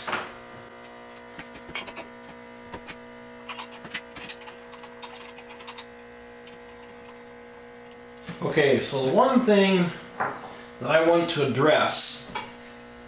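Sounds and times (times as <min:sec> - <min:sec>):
steady electrical hum: 0:00.0 - 0:13.0
metal parts clicking and tapping: 0:01.4 - 0:07.2.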